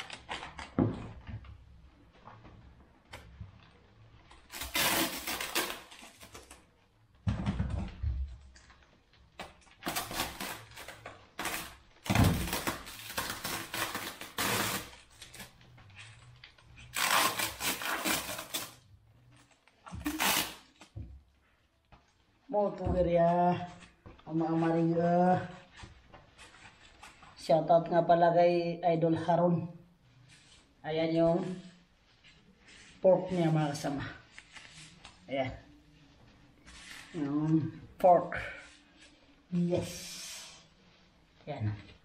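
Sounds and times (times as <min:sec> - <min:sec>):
plastic wrap crinkling: 0:00.0 - 0:00.8, 0:01.8 - 0:07.1, 0:08.5 - 0:22.5.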